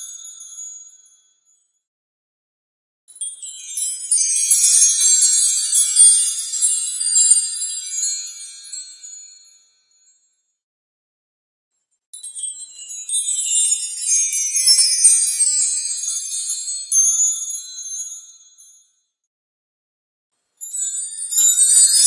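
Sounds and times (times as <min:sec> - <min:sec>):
wind chimes tinkling: 0:00.0 - 0:01.7, 0:03.2 - 0:10.1, 0:12.2 - 0:19.0, 0:20.6 - 0:22.0.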